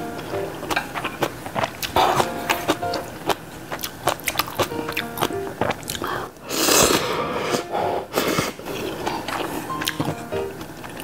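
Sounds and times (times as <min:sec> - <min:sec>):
chewing: 0:00.2 - 0:07.6, 0:08.2 - 0:11.0
noodles slurping: 0:05.6 - 0:10.0.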